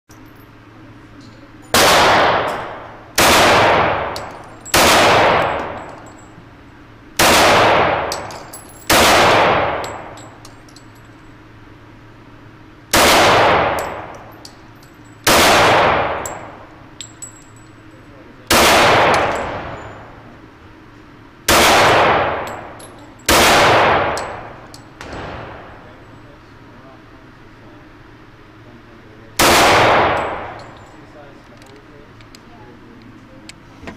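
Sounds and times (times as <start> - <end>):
pistol shots with reverberation: 1.7 - 6.0, 7.2 - 10.4, 12.9 - 14.4, 15.2 - 16.7, 18.5 - 20.3, 21.5 - 25.8, 29.4 - 30.8.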